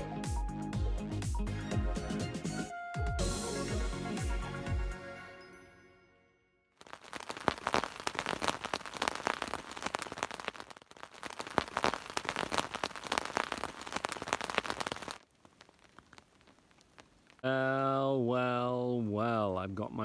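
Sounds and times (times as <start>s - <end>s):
rain pattering: 6.8s - 17.5s.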